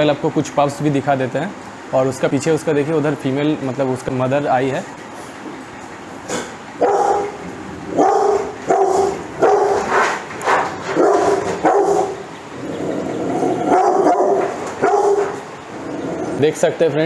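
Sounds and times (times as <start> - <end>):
dog barking: 6.8 - 12.2, 13.7 - 15.4.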